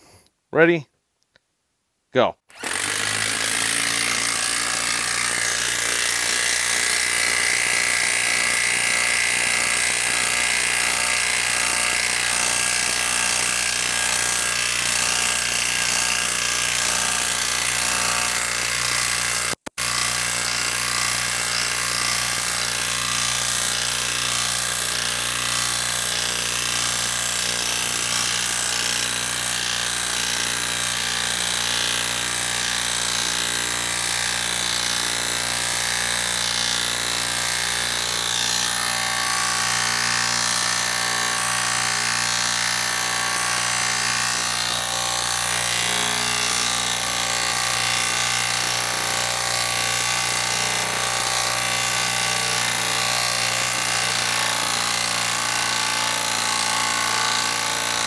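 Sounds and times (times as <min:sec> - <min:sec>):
impact wrench hammering: 0:02.5 - 0:58.0.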